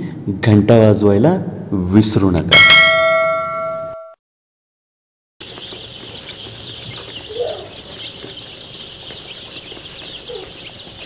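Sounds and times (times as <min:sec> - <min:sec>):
chicks peeping: 0:05.4 - 0:11.0.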